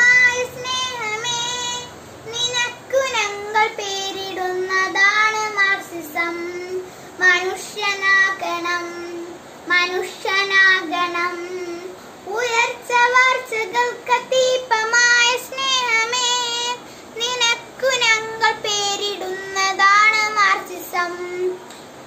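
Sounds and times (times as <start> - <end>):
girl singing solo: 0.0 - 21.7
girl breathing: 6.8 - 7.2, 16.8 - 17.2.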